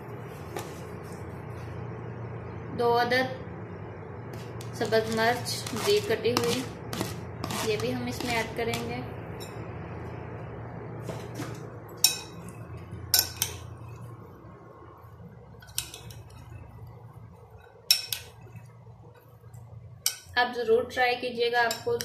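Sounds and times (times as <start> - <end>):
low steady hum: 0.0 - 22.0
metal spoon clinking on glass bowl: 17.9 - 18.4.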